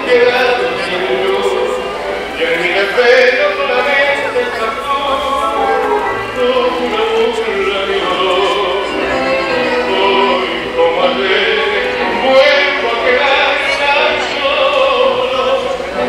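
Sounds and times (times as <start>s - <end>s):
music playing: 0.0s - 16.0s
voices singing: 0.0s - 16.0s.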